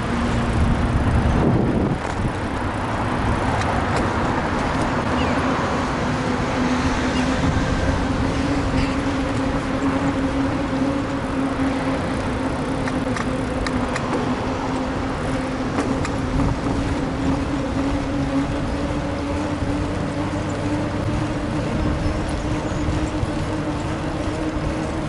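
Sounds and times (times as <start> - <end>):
bicycle riding rumble: 0.0 - 25.0
road traffic noise: 0.0 - 25.0
steady hum rising in pitch: 0.0 - 25.0.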